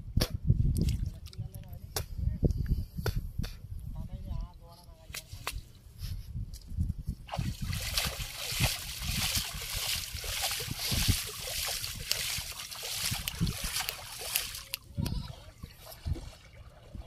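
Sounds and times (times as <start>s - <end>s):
water splashing and sloshing: 7.2s - 17.0s
low thumps of water: 7.3s - 17.0s.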